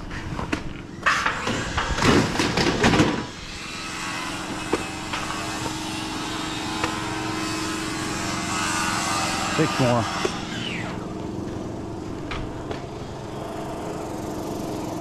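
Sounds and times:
engine drone: 0.0s - 15.0s.

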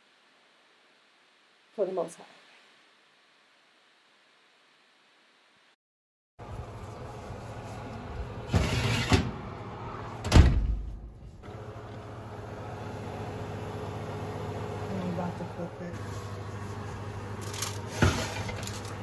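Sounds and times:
oven rack scraping slide: 8.4s - 9.5s, 17.4s - 19.0s.

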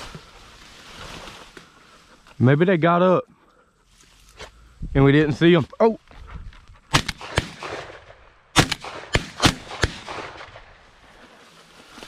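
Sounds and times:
shotgun shots: 6.9s - 10.8s.

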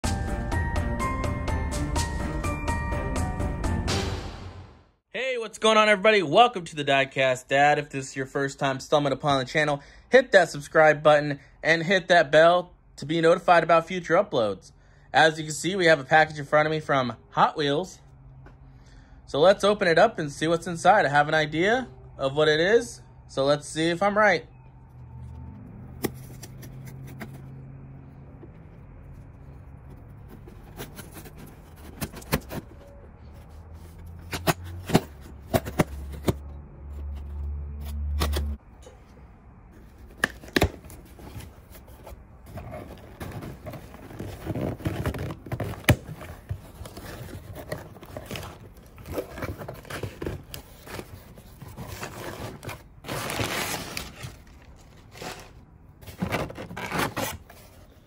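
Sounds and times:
cardboard scrapes and knocks: 30.2s - 32.7s, 40.1s - 54.4s, 55.0s - 57.9s
tissue paper rustling: 41.0s - 55.6s.

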